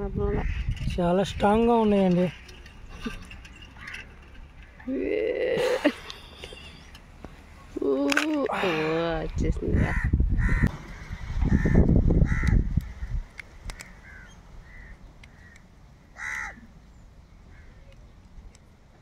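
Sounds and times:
crows cawing: 3.8s - 4.2s, 9.7s - 16.7s, 17.5s - 17.8s.

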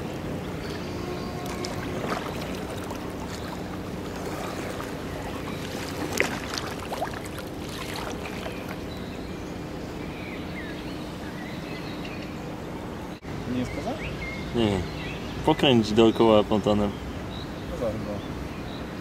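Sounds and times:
boat wash noise: 0.0s - 9.8s
low even hum: 0.0s - 13.6s.

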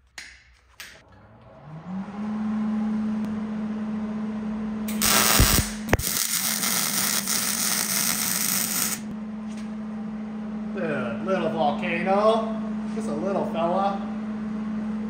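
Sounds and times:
welder humming: 4.8s - 9.2s
welding arc crackling: 4.9s - 9.1s.

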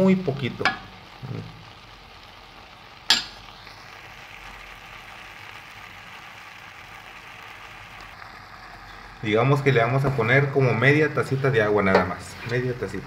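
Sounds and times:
vegetables sizzling in a pot: 0.0s - 13.0s.

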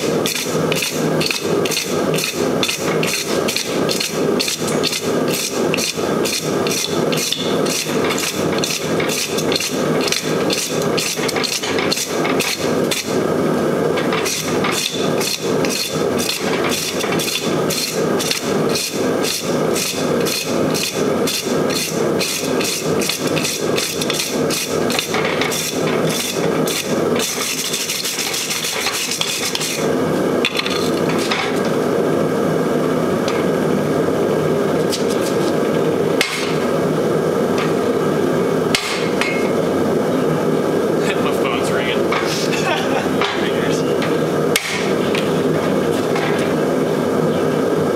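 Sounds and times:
hammer striking steel on anvil: 38.7s - 39.5s, 44.6s - 44.9s.

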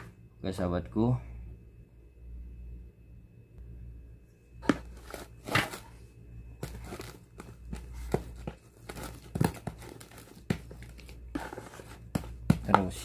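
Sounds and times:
hand kneading sticky dough: 6.6s - 13.0s.

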